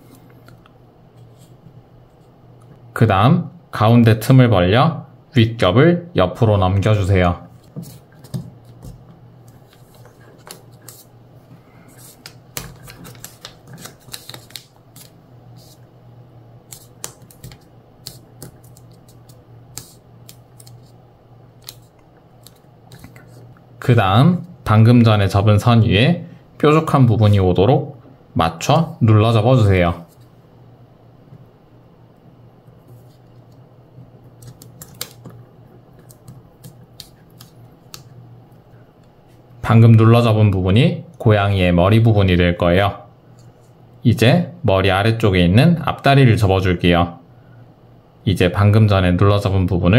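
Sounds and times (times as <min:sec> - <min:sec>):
low steady hum: 0:00.0 - 0:49.9
paper crackling while folded: 0:11.9 - 0:15.8, 0:16.7 - 0:21.0.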